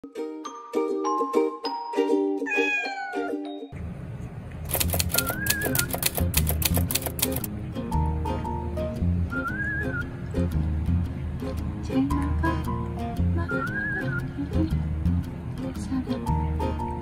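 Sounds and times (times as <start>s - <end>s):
meow-like falling glide: 2.5s - 3.4s
light background music: 4.8s - 17.0s.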